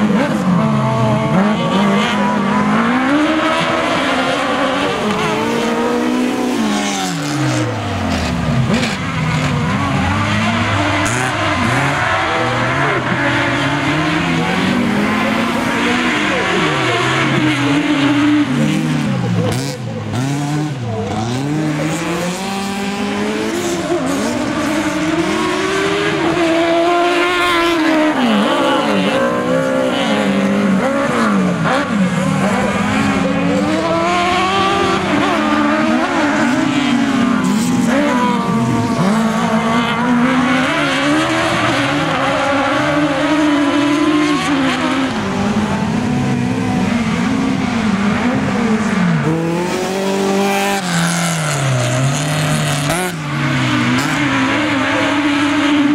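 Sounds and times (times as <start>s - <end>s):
race car engines revving: 0.0s - 55.9s.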